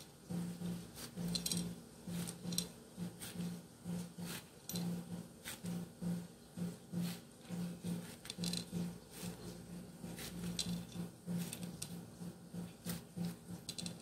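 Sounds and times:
low pulsing hum: 0:00.0 - 0:14.0
knife cutting pineapple on board: 0:03.1 - 0:04.6.

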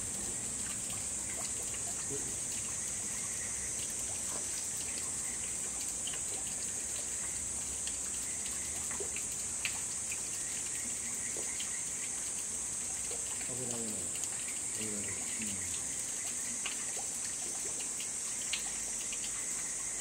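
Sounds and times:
water trickling over rocks: 0:00.0 - 0:20.0
high-pitched hiss: 0:11.3 - 0:17.0.

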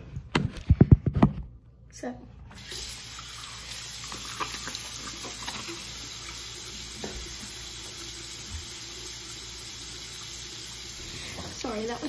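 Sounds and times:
water splashing: 0:02.6 - 0:09.0
tap running into sink: 0:06.8 - 0:08.9.

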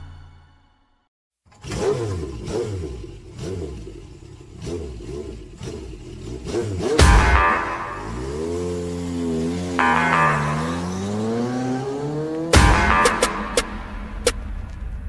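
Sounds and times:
recorded car engine revving: 0:01.5 - 0:14.4
song playing: 0:07.0 - 0:08.6, 0:09.8 - 0:11.8, 0:12.5 - 0:14.4.

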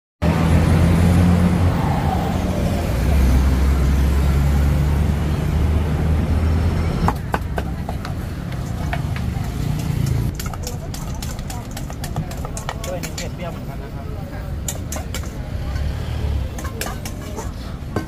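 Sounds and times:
city street traffic: 0:00.2 - 0:18.0
vehicle engine humming: 0:00.2 - 0:18.0
metal utensils clinking: 0:14.6 - 0:18.0.

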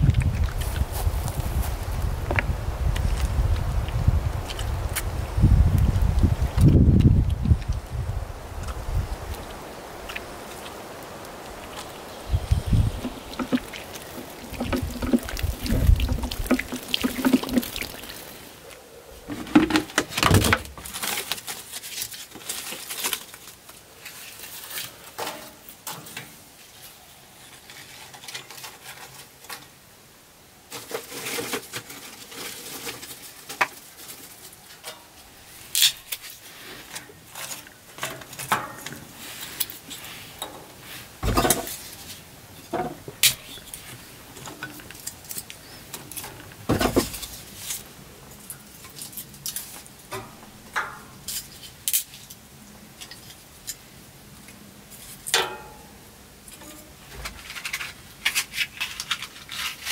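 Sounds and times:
kindling laid into wood stove: 0:11.5 - 0:18.7, 0:30.7 - 0:52.1, 0:55.1 - 0:59.9
plastic containers handled: 0:11.7 - 0:18.5, 0:19.2 - 0:26.4, 0:30.7 - 0:51.8.

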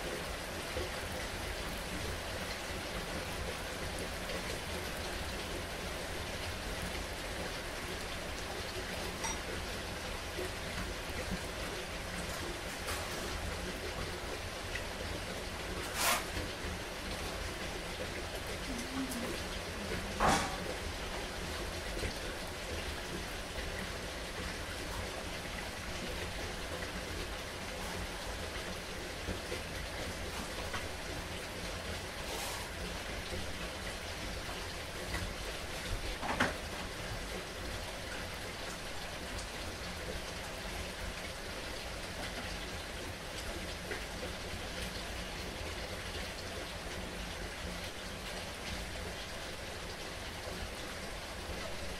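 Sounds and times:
heavy rain falling: 0:00.0 - 0:51.9
heavy rain hissing: 0:15.4 - 0:23.5, 0:27.3 - 0:35.7
short swish of noise: 0:15.8 - 0:16.3.

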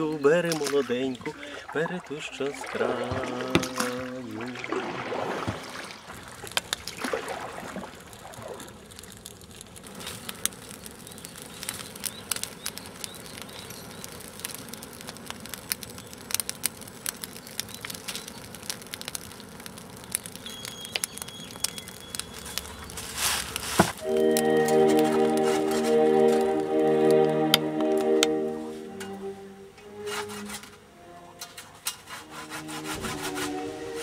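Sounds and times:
fire crackling in dry grass: 0:05.6 - 0:29.0.

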